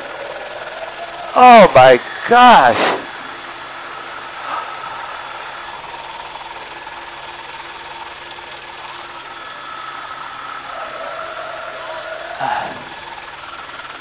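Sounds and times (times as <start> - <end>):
helicopter engine and rotor drone: 0.0 - 14.0
high steady whine: 0.0 - 14.0.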